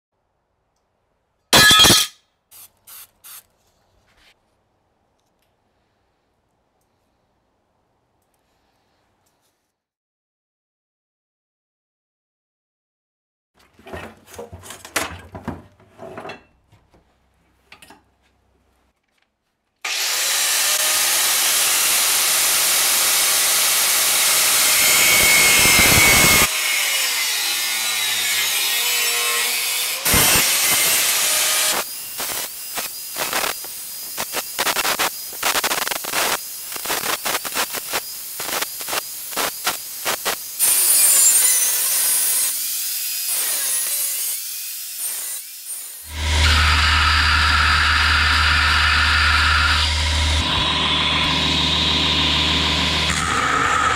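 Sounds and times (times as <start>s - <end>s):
angle grinder grinding steel: 1.6s - 2.2s, 19.9s - 53.9s.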